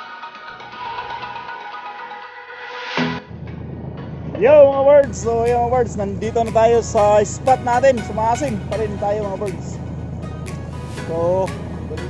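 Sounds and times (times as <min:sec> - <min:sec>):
low beat: 0:03.0 - 0:12.0.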